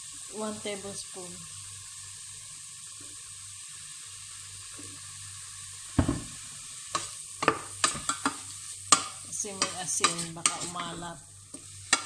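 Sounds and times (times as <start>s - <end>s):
food sizzling in a pot: 0.0s - 12.0s
wooden spoon knocking on pot: 6.0s - 6.4s, 7.0s - 10.8s.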